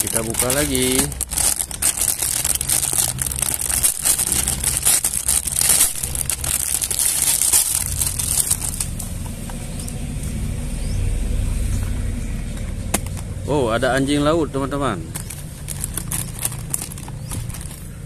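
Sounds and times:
plastic bag crinkling: 0.0 - 9.3, 15.0 - 18.0
low rumble: 0.0 - 18.0.

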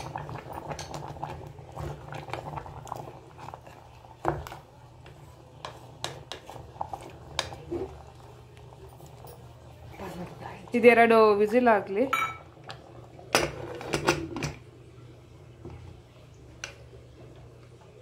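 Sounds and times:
spatula stirring thick gravy: 0.7 - 10.0.

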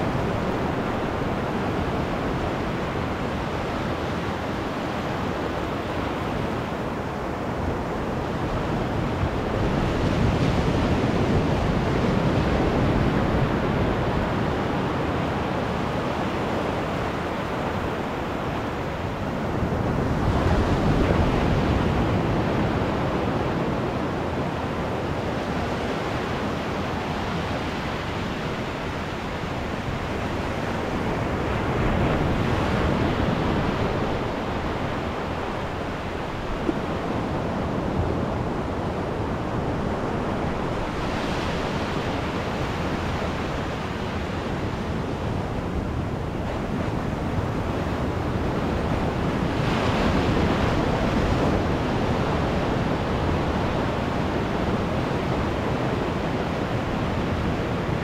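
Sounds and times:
ocean surf breaking on beach: 0.0 - 58.0.

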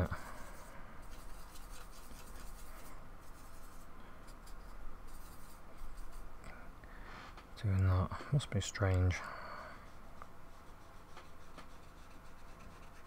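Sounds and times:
paintbrush scratching and rubbing: 0.0 - 6.3, 10.5 - 13.0.

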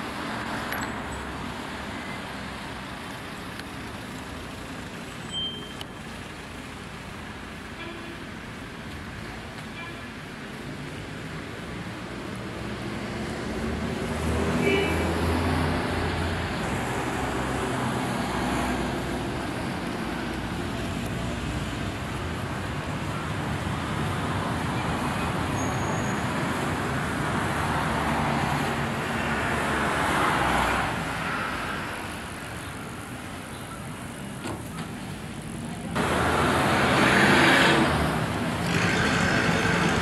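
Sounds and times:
cars driving past: 10.7 - 33.2, 33.9 - 40.0.

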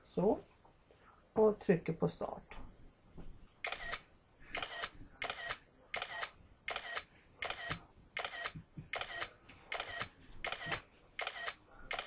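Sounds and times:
camera shutter clicks: 3.6 - 4.0, 4.6 - 12.0.

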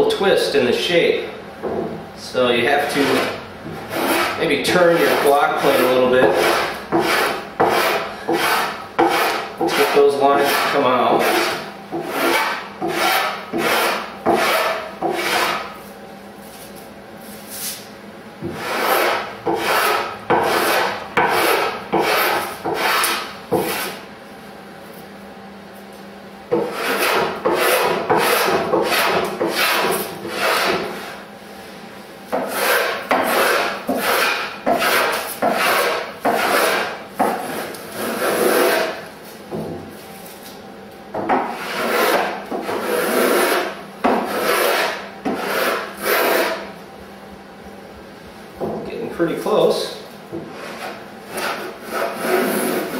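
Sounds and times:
block plane shaving wood: 2.8 - 15.8, 18.5 - 24.0, 26.5 - 31.2, 32.3 - 39.0, 41.3 - 46.7, 50.4 - 52.9.

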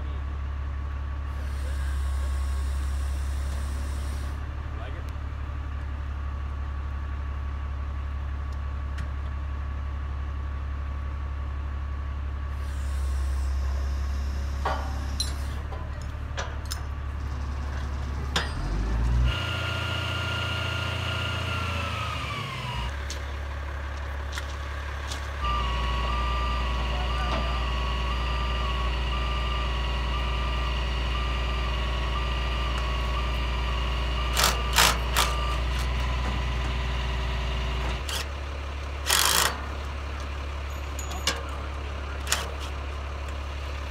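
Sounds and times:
truck engine running: 0.0 - 43.9
metal clicks and clanks: 14.6 - 17.0.

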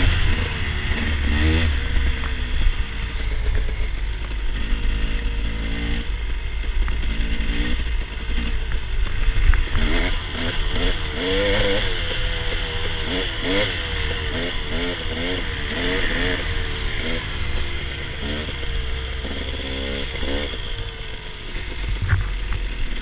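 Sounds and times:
dirt bike engine revving: 0.0 - 23.0
wind rumble on microphone: 21.8 - 22.7.

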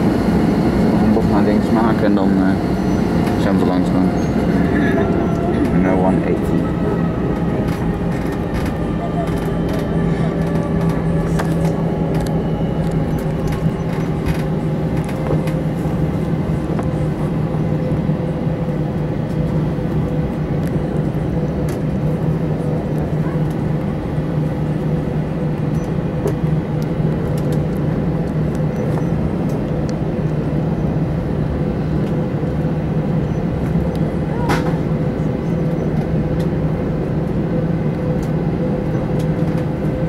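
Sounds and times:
jet engines humming: 0.0 - 40.0
faint cabin clicks and rattles: 7.0 - 17.0.

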